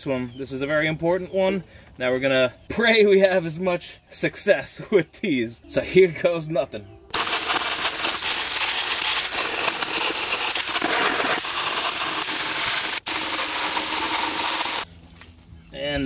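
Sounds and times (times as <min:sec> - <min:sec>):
drill wire brush scrubbing metal: 0:07.1 - 0:14.9.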